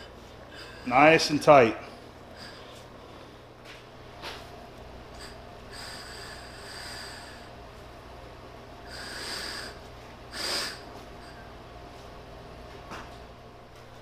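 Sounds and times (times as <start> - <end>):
person exhaling through nose: 8.9 - 10.9.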